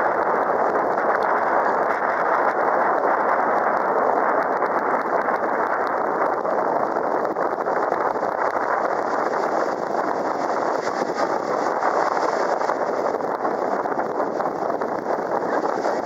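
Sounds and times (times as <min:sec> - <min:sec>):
boat motor and water rush: 0:00.0 - 0:16.0.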